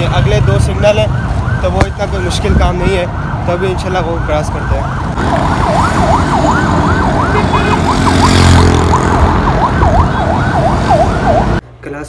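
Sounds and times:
street traffic rumble: 0.0s - 12.0s
emergency siren yelping: 0.2s - 11.6s
vehicle engine: 5.2s - 11.6s.

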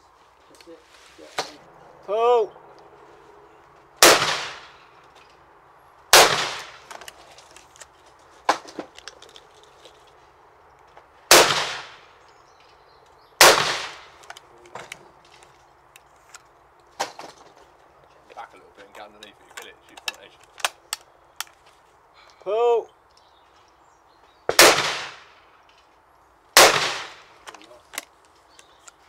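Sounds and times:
shotgun shots with echo: 4.0s - 4.7s, 6.1s - 6.8s, 11.3s - 12.0s, 13.4s - 14.1s, 24.5s - 25.3s, 26.6s - 27.3s
sharp crack: 4.0s - 5.4s, 6.1s - 9.4s, 11.3s - 12.4s, 13.4s - 15.0s, 16.8s - 17.6s, 19.2s - 21.6s, 24.5s - 29.0s
gun mechanism clicks: 6.8s - 8.0s, 14.2s - 16.5s, 19.2s - 21.7s.

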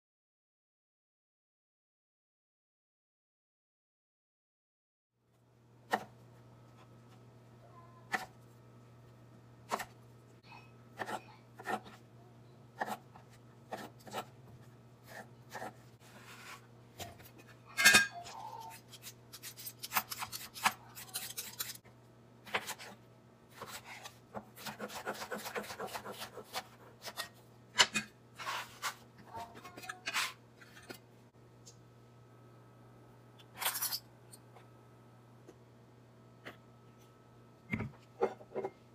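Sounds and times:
knife cutting on wooden board: 23.6s - 27.3s.

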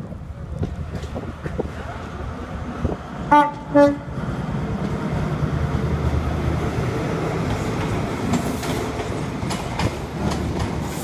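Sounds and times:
diesel train engine drone: 0.0s - 11.0s
train wheels clicking on rail joints: 0.5s - 2.0s, 4.6s - 11.0s.

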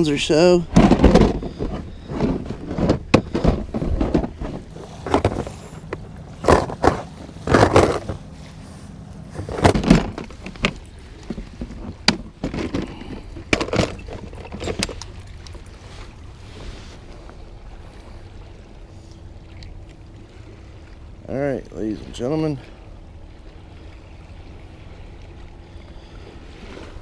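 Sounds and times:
plastic box knocking and rattling: 0.7s - 8.2s, 9.4s - 14.9s.

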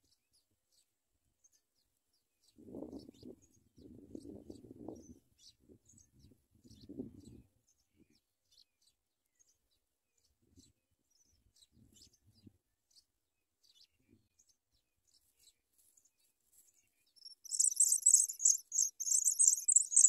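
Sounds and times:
nestlings cheeping: 17.2s - 20.0s.

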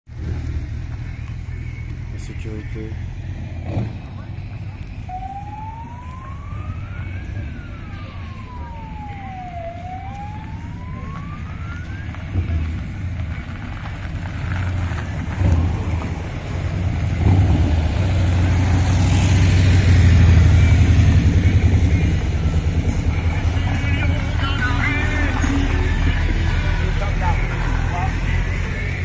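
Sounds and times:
motorcycle engines rumbling past: 2.9s - 29.0s
siren wailing: 5.0s - 13.0s, 17.8s - 28.8s.

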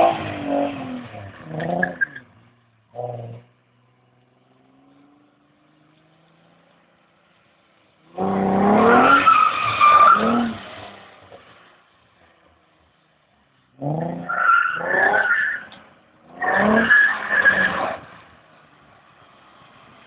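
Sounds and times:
tires squealing on wet pavement: 8.2s - 11.6s, 13.8s - 18.4s.

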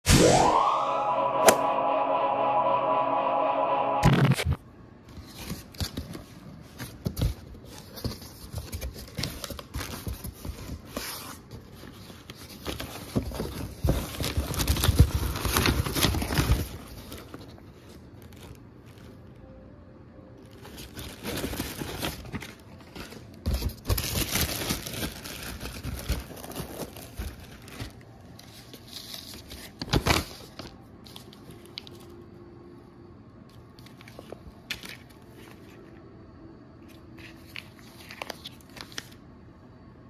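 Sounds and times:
paper rustling: 5.1s - 19.4s, 20.4s - 32.2s, 33.5s - 36.0s, 36.8s - 39.2s
plastic package crinkling: 11.7s - 19.5s, 20.4s - 32.2s, 37.0s - 39.2s.

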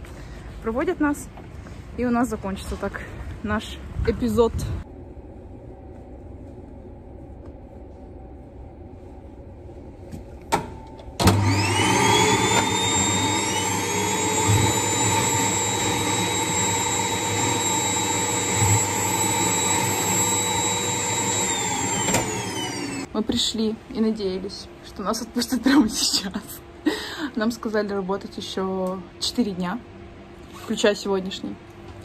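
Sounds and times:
low hum: 0.0s - 12.9s
vacuum motor whining: 11.2s - 23.1s.

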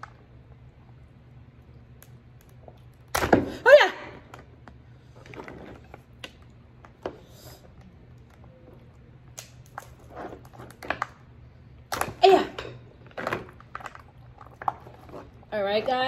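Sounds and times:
crab shell cracking: 9.2s - 10.0s.

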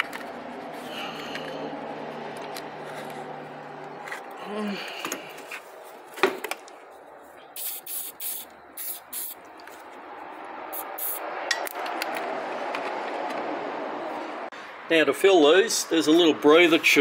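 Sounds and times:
aerosol spray can hissing: 7.6s - 9.4s, 10.8s - 11.2s.

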